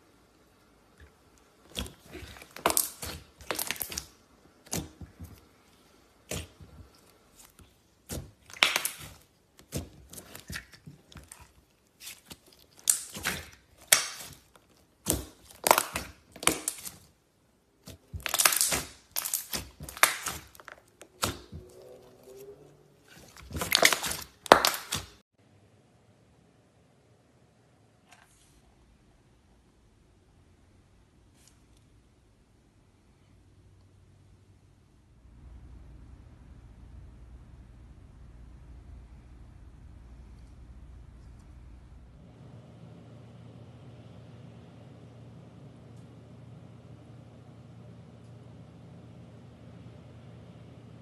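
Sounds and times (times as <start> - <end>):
slime sticky clicks and pops: 8.5 - 10.7, 18.2 - 21.5.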